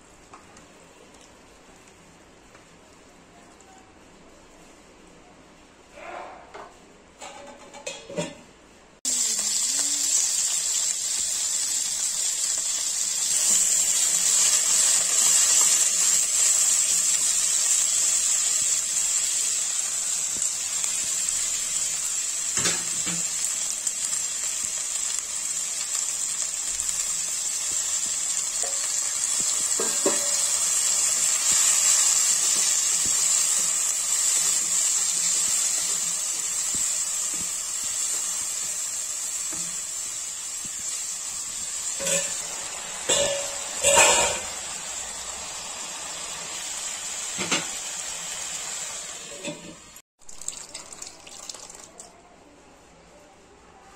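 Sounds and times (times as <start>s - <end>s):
food sizzling in hot oil: 9.0s - 52.0s.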